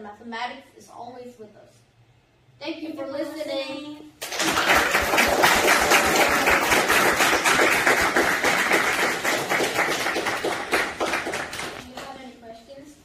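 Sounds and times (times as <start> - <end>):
audience applauding: 4.2 - 11.8.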